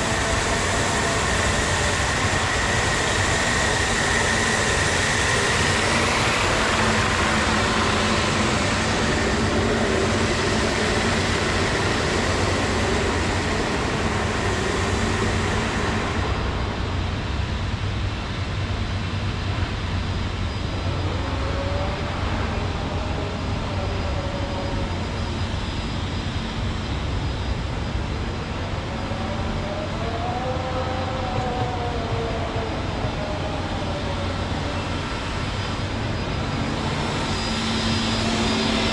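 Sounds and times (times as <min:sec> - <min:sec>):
floor scrubber whine and hiss: 0:00.0 - 0:17.2, 0:29.1 - 0:38.9.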